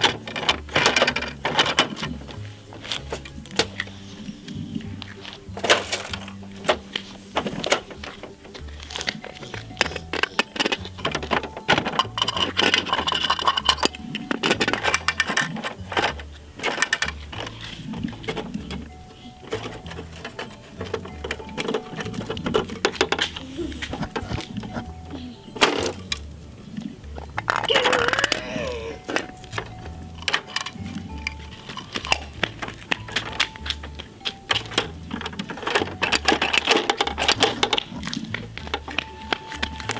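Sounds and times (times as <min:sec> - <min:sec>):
background music with bass line: 0:00.0 - 0:39.9
plastic toy clicking and snapping: 0:07.6 - 0:24.8, 0:29.0 - 0:39.9.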